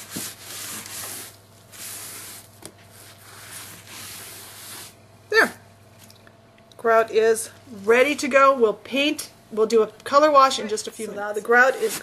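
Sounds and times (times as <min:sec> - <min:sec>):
damp sponge rubbing over wall: 0:00.0 - 0:05.0, 0:11.5 - 0:12.0.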